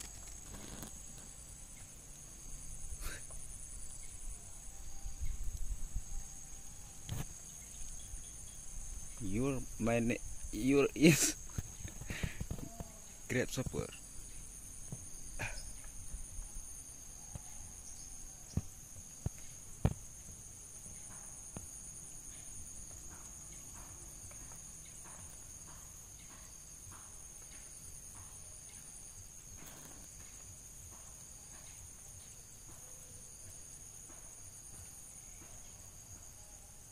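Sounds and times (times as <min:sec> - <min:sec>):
faint irregular ticks: 0:00.0 - 0:01.9, 0:29.5 - 0:32.4
insect chorus trilling: 0:00.0 - 0:36.9.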